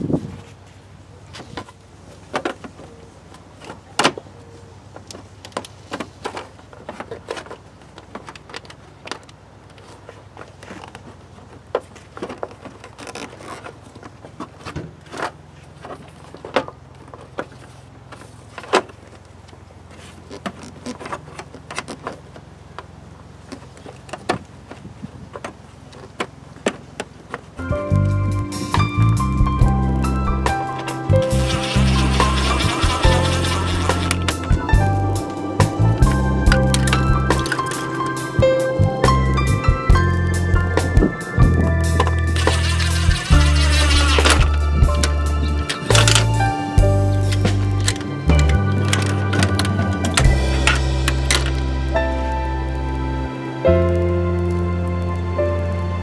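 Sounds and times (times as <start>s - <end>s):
low steady hum: 27.5s - 56.0s
plastic parts clicking and tapping: 41.0s - 46.4s.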